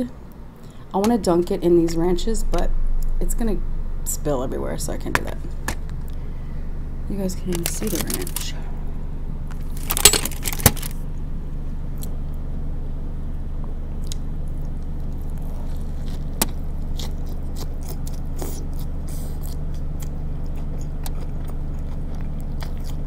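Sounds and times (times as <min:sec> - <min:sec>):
low hum: 0:00.0 - 0:23.0
biting a burger: 0:14.0 - 0:23.0
chewing clicks and crackles: 0:14.0 - 0:23.0.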